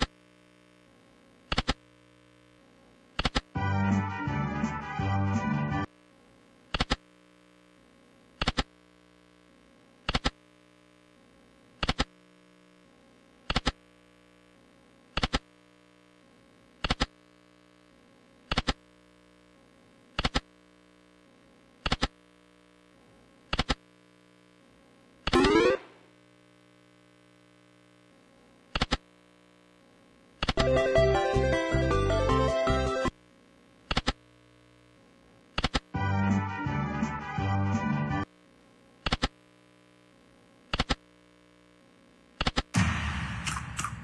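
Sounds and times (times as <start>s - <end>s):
slot machine win jingle: 25.3s - 26.0s, 30.6s - 33.1s.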